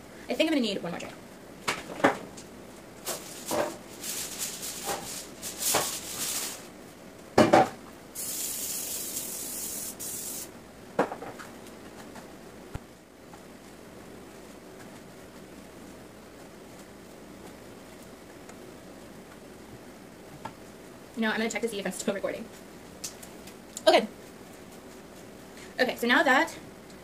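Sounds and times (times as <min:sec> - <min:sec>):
kale rustling: 0:03.0 - 0:06.8
aerosol spray hiss: 0:08.2 - 0:10.5.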